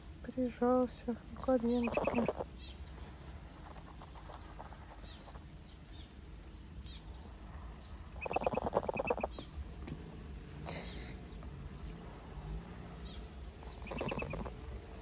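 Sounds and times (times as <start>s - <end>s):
cygnet peeping: 1.7s - 2.4s, 8.2s - 9.4s, 13.8s - 14.5s.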